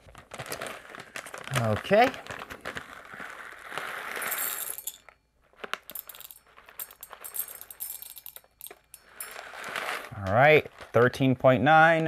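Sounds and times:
paper bag crinkling: 0:00.0 - 0:07.3, 0:09.1 - 0:12.0
coffee beans clinking into metal cup: 0:03.6 - 0:11.2.

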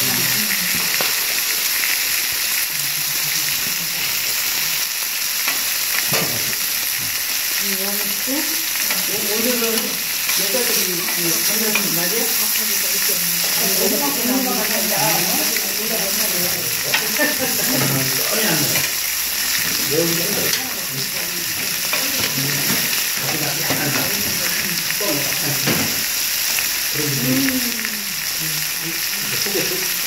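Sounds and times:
murmur of voices: 0:00.0 - 0:01.2, 0:07.7 - 0:26.1
meat sizzling on a griddle: 0:00.0 - 0:30.0
metal tongs clinking: 0:08.8 - 0:12.6, 0:16.8 - 0:19.6, 0:20.3 - 0:20.8.

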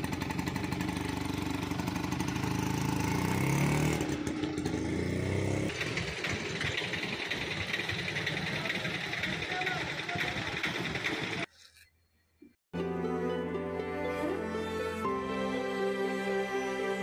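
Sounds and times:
rickshaw engine revving: 0:00.0 - 0:11.5.

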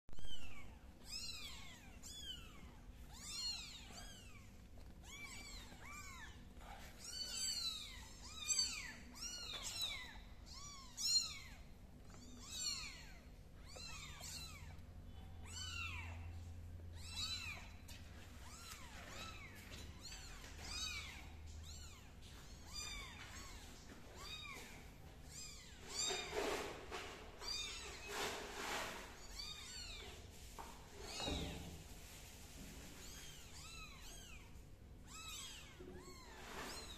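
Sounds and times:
kittens mewing: 0:00.2 - 0:14.8.

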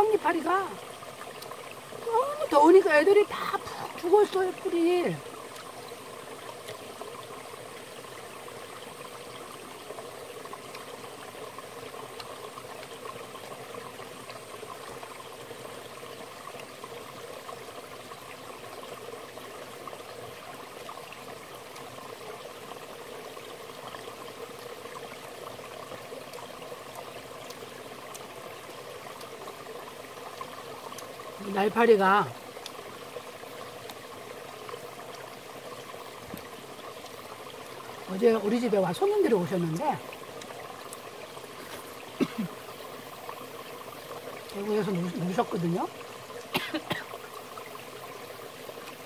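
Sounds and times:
mountain stream running: 0:00.0 - 0:49.0.

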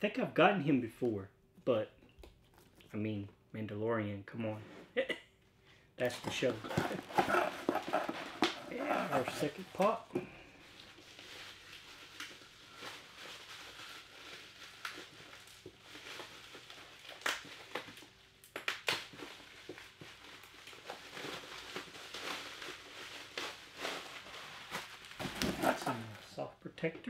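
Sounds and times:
packing material rustling: 0:06.0 - 0:26.4
small crackles and knocks: 0:09.8 - 0:24.0.

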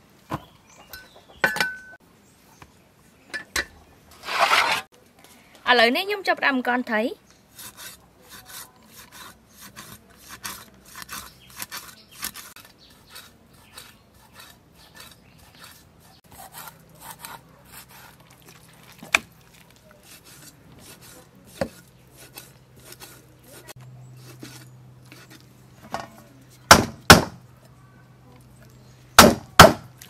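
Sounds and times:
knife scraping fish: 0:07.5 - 0:18.7, 0:19.4 - 0:25.5.

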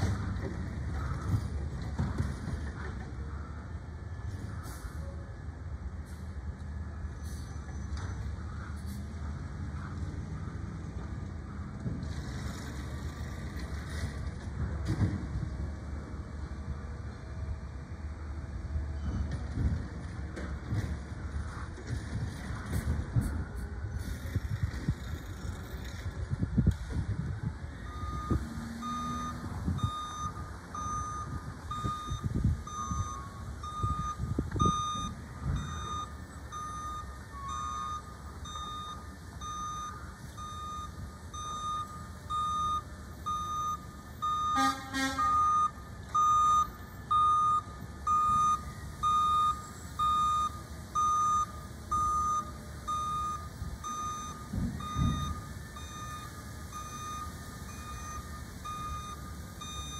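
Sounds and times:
low truck engine rumble: 0:00.0 - 0:59.9
reversing alarm beeping: 0:27.8 - 0:59.9.

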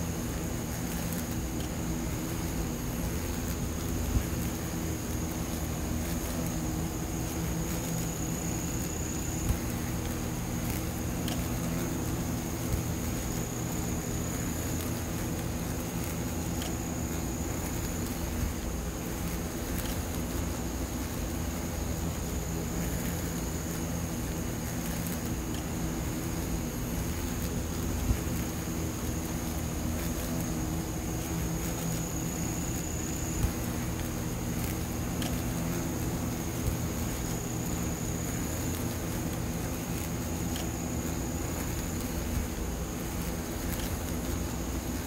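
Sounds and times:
faint high whine: 0:00.0 - 0:45.0
hornet wings buzzing: 0:00.0 - 0:45.0.

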